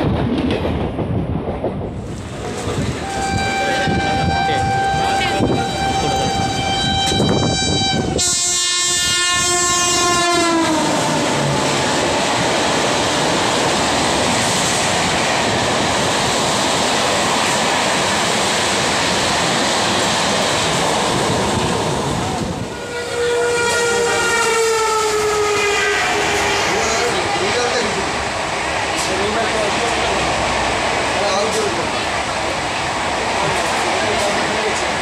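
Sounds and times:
train coaches clattering past: 0:00.0 - 0:35.0
train horn sliding down in pitch: 0:03.0 - 0:11.6, 0:22.7 - 0:27.2.

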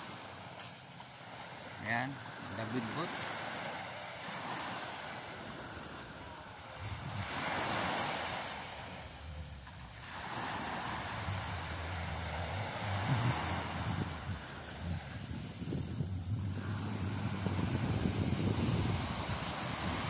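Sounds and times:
small waves washing onto beach: 0:00.0 - 0:20.0
wind rumbling on microphone: 0:03.2 - 0:20.0.

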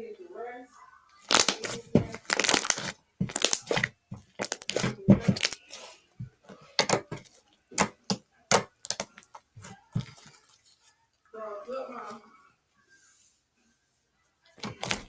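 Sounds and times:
slime crackling and squelching: 0:01.2 - 0:06.0, 0:06.8 - 0:10.7, 0:14.6 - 0:15.0.

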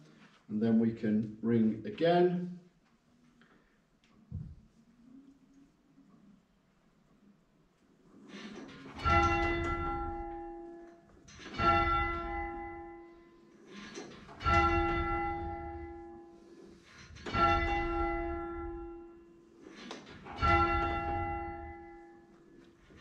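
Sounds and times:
church bell striking: 0:08.9 - 0:13.5, 0:14.3 - 0:19.6, 0:20.2 - 0:23.0.

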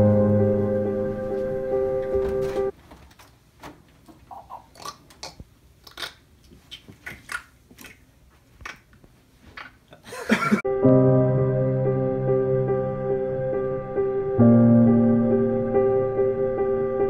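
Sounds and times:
calm background music: 0:00.0 - 0:02.7, 0:10.7 - 0:17.0.

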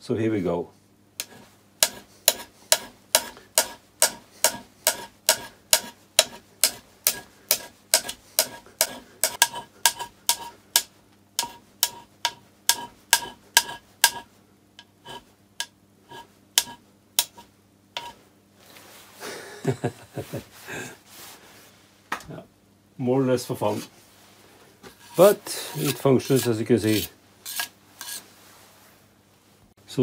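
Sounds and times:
hand scraper scraping metal plate: 0:01.2 - 0:15.3, 0:16.1 - 0:18.2, 0:24.9 - 0:28.3.

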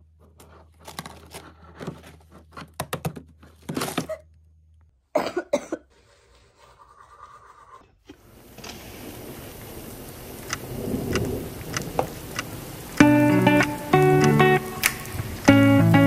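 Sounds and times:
woman coughing: 0:05.1 - 0:05.9.

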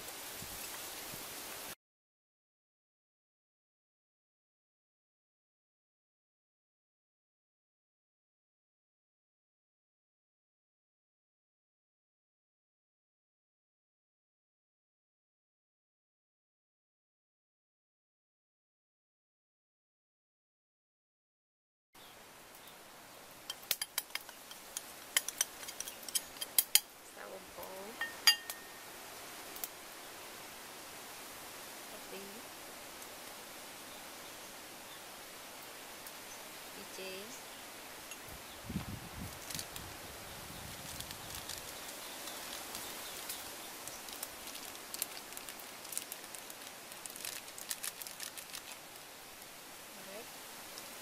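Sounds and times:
steady hiss: 0:00.0 - 0:01.8, 0:22.0 - 0:51.0
packet crinkles and spoon clicks: 0:23.5 - 0:26.8, 0:40.9 - 0:42.9, 0:44.0 - 0:48.8
metal spoon tapping a container: 0:28.0 - 0:28.7.

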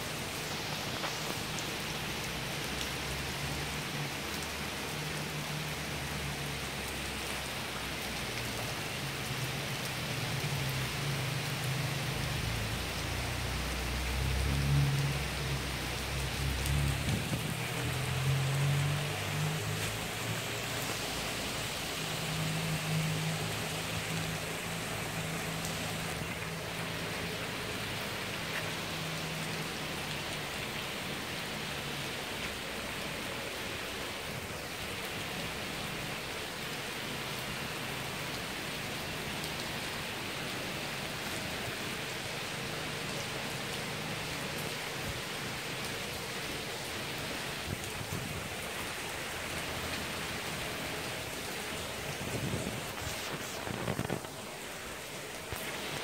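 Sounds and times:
heavy rain on pavement: 0:00.0 - 0:56.0.

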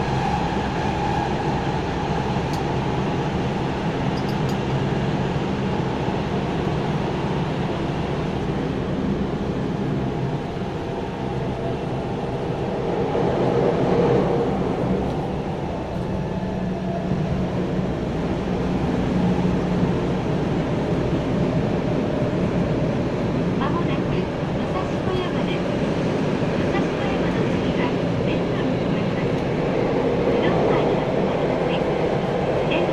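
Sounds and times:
train wheels rumbling on rails: 0:00.0 - 0:32.9.

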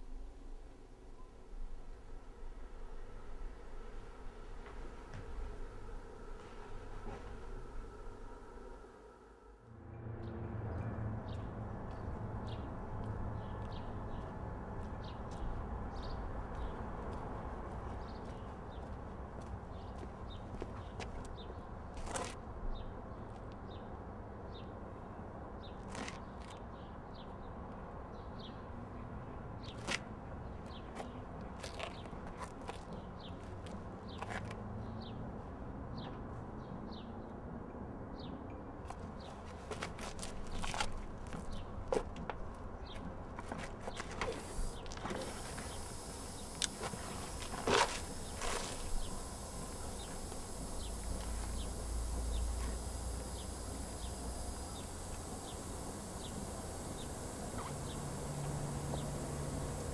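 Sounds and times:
footsteps on pavement: 0:11.4 - 0:22.4, 0:29.7 - 0:34.6, 0:38.9 - 0:52.8
low street rumble: 0:39.0 - 0:59.9
bird chirping: 0:44.5 - 0:59.9.

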